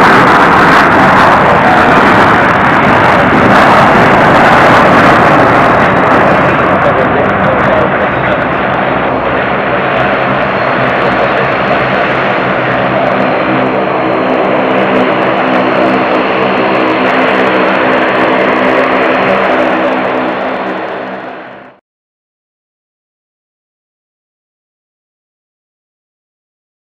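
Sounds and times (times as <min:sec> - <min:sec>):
engine tonal hum: 0:00.0 - 0:21.8
jet engines rushing: 0:00.0 - 0:21.8.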